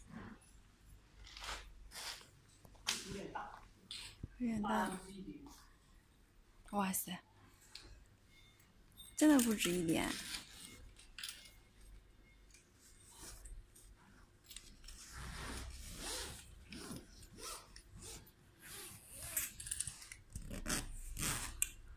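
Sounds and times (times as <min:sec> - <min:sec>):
stretch fabric rustling and rubbing: 0:14.9 - 0:19.4.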